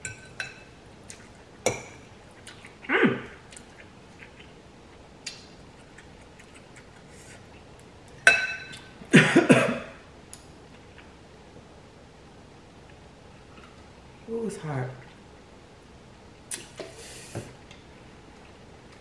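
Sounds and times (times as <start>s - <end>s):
short falling vocal sound: 2.9s - 3.4s.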